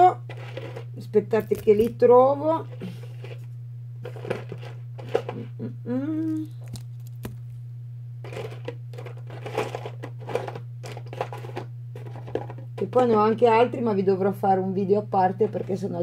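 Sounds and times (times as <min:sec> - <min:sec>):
steady low hum: 0:00.0 - 0:16.0
person humming: 0:05.4 - 0:06.7
hands rummaging through charms: 0:08.3 - 0:12.5.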